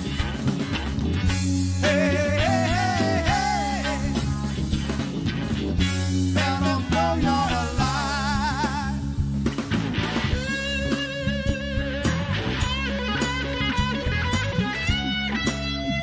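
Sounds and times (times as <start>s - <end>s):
drums: 0.0s - 16.0s
electric bass: 0.0s - 16.0s
electric guitar: 0.0s - 16.0s
male singer singing: 1.8s - 4.3s, 6.3s - 9.2s.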